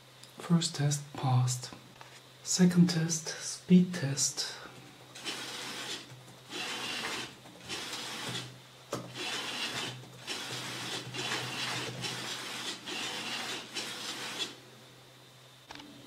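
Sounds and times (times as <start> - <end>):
steady low hum: 0.0 - 16.0
printer carriage rushing rubbing noise: 5.2 - 8.5, 9.1 - 14.6.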